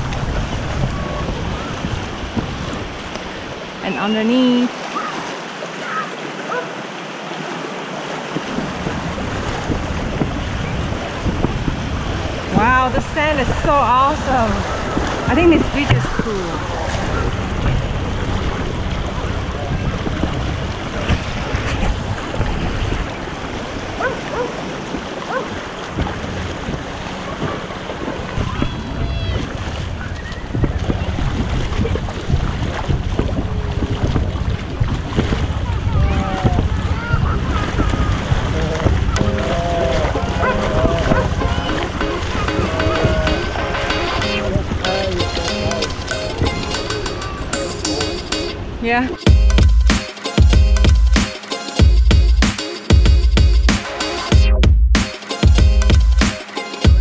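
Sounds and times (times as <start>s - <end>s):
wind rumbling on microphone: 0.0s - 3.9s, 8.2s - 47.6s
feet splashing in water: 0.0s - 12.7s, 14.2s - 44.1s
water washing around legs: 0.0s - 44.0s.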